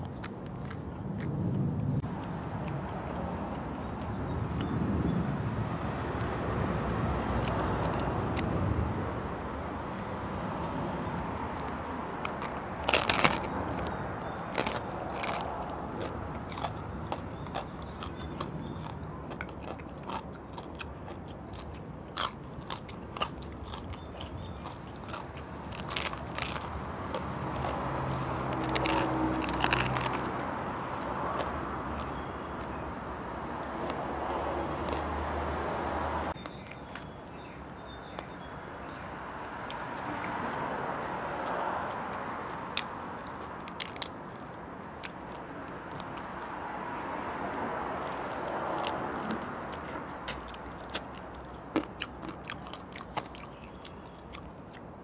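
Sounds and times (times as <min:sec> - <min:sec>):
chewing: 0:00.0 - 0:05.2, 0:06.1 - 0:08.6, 0:10.8 - 0:39.0, 0:39.6 - 0:55.0
crunching bites into crispy skin: 0:11.6 - 0:32.8.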